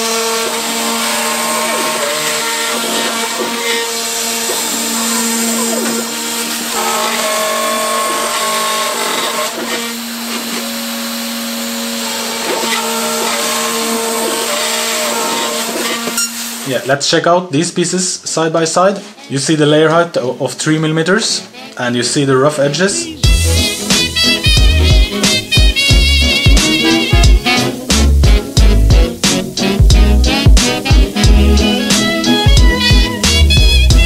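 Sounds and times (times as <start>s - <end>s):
router spindle milling: 0.0s - 16.7s
stepper motors whining: 0.0s - 16.7s.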